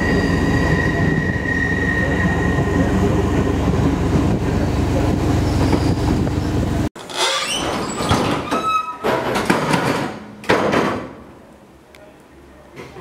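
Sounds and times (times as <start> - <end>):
train rumbling: 0.0 - 6.9
brief squeaks and knocks: 5.4 - 9.4.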